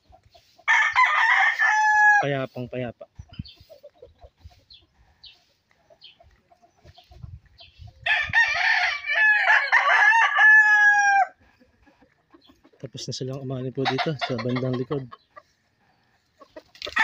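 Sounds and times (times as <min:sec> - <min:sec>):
rooster crowing: 0:00.7 - 0:02.2, 0:08.1 - 0:11.4.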